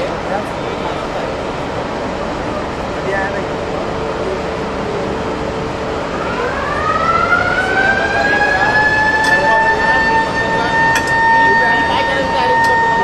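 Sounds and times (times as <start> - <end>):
steady background noise: 0.0 - 13.0
siren winding up: 6.2 - 13.0.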